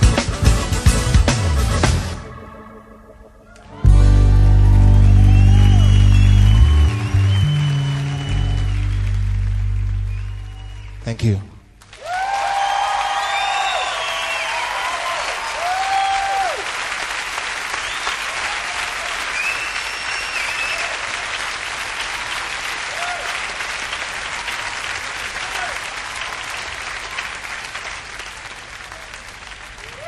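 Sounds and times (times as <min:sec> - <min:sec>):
cheers and whoops: 0:03.5 - 0:09.0, 0:11.9 - 0:16.8, 0:17.8 - 0:21.2, 0:22.9 - 0:23.4, 0:29.8 - 0:30.0
audience applauding: 0:03.6 - 0:30.0.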